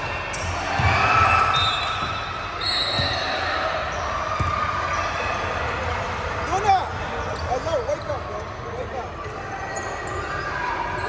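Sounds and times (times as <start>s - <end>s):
basketball bouncing on court: 0.3s - 3.4s, 4.3s - 4.7s
shoe squeaks: 0.3s - 4.5s, 7.3s - 8.6s, 9.7s - 11.0s.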